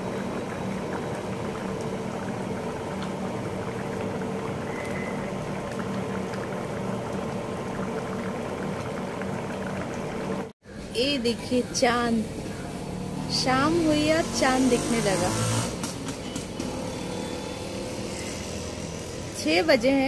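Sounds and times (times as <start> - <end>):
curry bubbling in a wok: 0.0 - 10.9.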